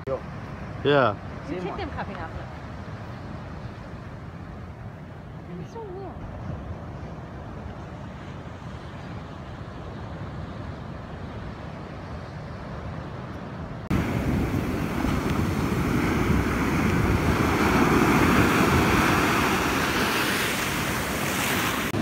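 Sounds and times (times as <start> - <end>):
surf rushing onto beach: 13.8 - 22.0
wind on microphone: 13.9 - 22.0.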